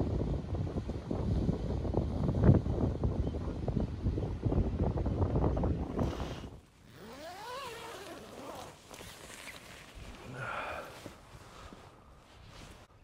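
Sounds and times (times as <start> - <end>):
tent zipper unzipping: 5.9 - 10.3
person shifting in tent: 6.0 - 12.9.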